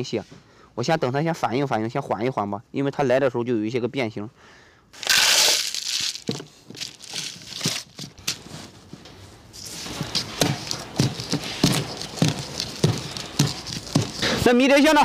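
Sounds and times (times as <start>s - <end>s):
potting mix rustling: 5.0s - 15.0s.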